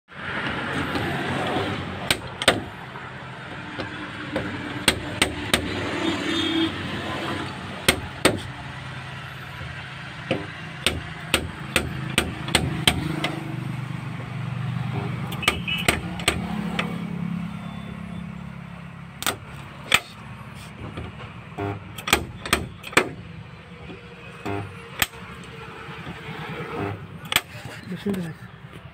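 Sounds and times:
dent puller clacks: 27.2 - 28.8.

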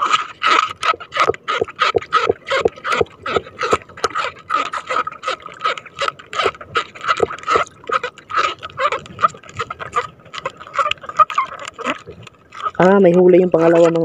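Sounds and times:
water splashing and dripping: 0.0 - 14.0.

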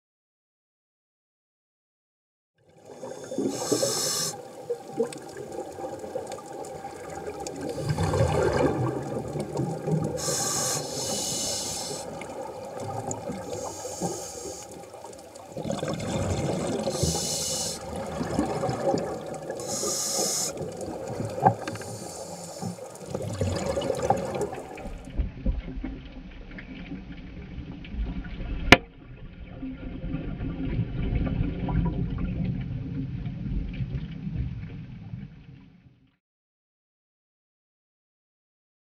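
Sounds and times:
exhaled bubbles underwater: 2.7 - 25.2, 29.1 - 35.2.

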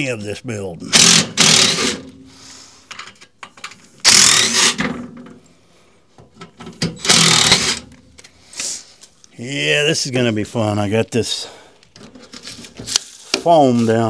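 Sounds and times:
power drill running: 0.9 - 2.1, 4.0 - 4.8, 7.0 - 7.9.

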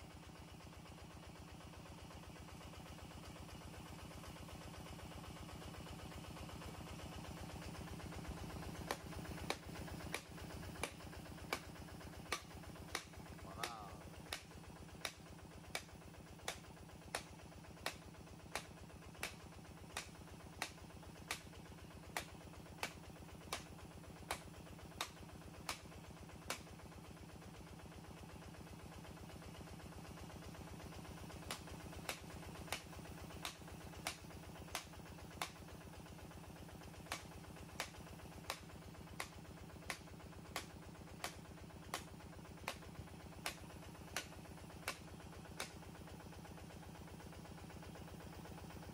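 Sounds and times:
drilling rig engine running: 0.0 - 48.9
sharp repeating click: 8.2 - 26.7, 31.4 - 35.6, 37.0 - 45.8.

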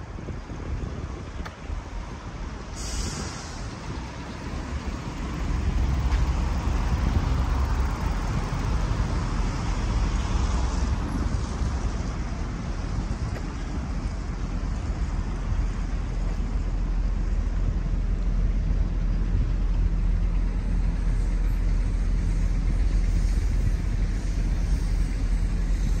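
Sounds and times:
road traffic rumble: 0.0 - 26.0
short hiss: 2.7 - 3.9.

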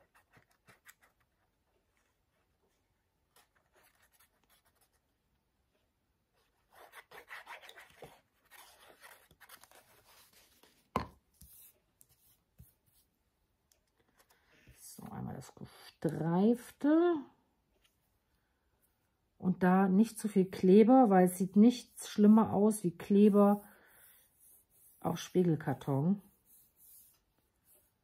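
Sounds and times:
paper rustling: 6.6 - 13.1.

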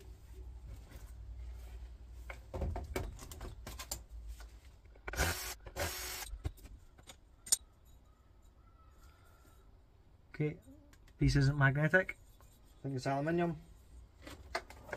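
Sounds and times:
cordless drill running: 5.1 - 6.3.

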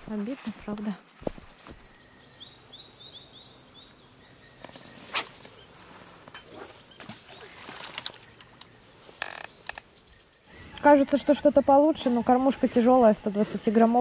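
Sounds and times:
outdoor background noise: 0.0 - 14.0
small bird chirping: 1.6 - 10.6.

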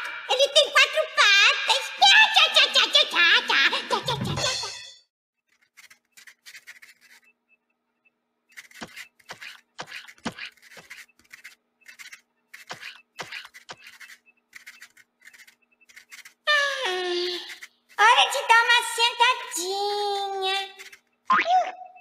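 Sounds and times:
pen scratching on clipboard: 5.5 - 7.3, 8.5 - 16.4, 20.7 - 21.1.

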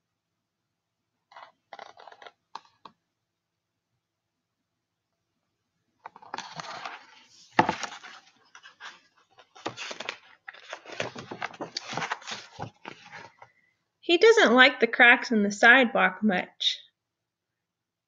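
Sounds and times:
book pages turning: 1.3 - 2.9, 6.0 - 13.5.

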